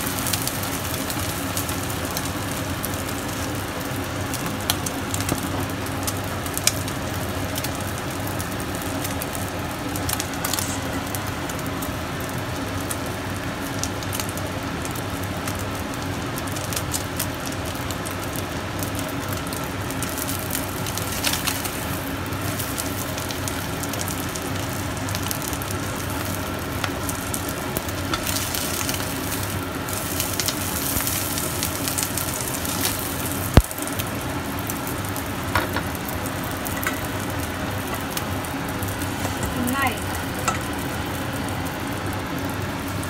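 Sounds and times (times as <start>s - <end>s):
omelette sizzling in oil: 0.0s - 43.0s
spatula in pan: 26.8s - 33.4s.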